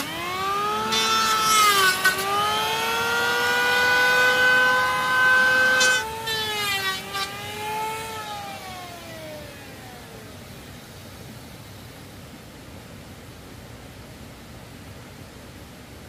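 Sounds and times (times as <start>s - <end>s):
power tool motor whining: 0.0s - 9.9s
harsh wood cutting noise: 0.0s - 10.2s.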